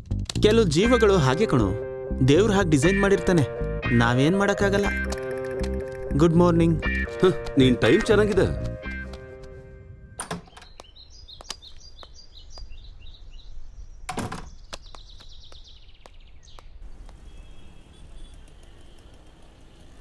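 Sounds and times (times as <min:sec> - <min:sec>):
door thudding: 0:10.2 - 0:10.7, 0:14.1 - 0:14.6
birds chirping: 0:10.2 - 0:20.0
steady hiss: 0:16.8 - 0:20.0.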